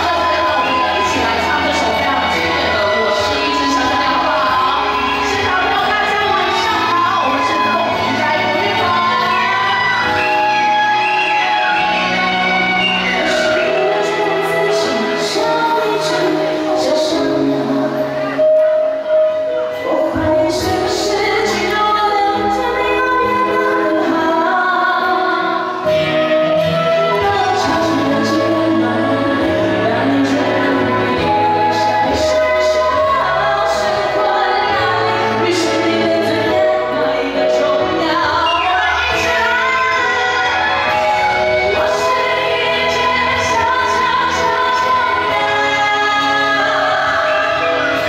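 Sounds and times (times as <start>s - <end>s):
erhu: 0.0s - 21.6s, 25.7s - 48.0s
flute: 0.0s - 48.0s
keyboard: 0.0s - 48.0s
traditional orchestra: 0.0s - 48.0s
woman singing: 0.0s - 48.0s.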